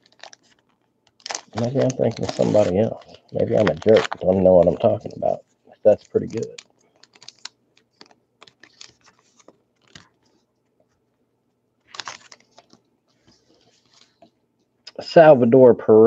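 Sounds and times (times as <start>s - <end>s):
cards rustling and sliding: 0.0s - 4.7s, 5.9s - 10.4s, 11.8s - 14.3s
wrapper crinkling and tearing: 0.0s - 10.3s, 11.8s - 12.8s.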